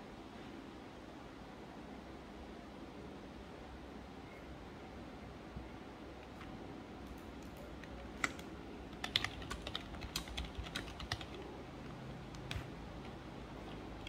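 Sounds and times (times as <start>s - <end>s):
typing on computer keyboard: 7.1s - 11.5s.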